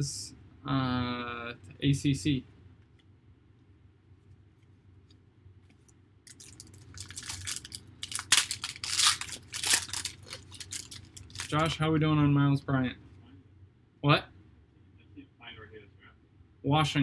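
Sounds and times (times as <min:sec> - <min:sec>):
foil wrapper tearing and crinkling: 0:06.3 - 0:11.8.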